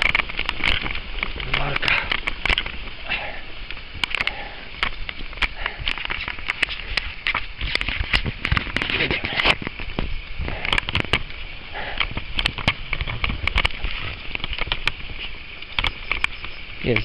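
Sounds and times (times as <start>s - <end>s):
steady hiss: 0.0s - 17.0s
bicycle crunching through sand: 11.2s - 17.0s
sharp clicks: 15.6s - 17.0s.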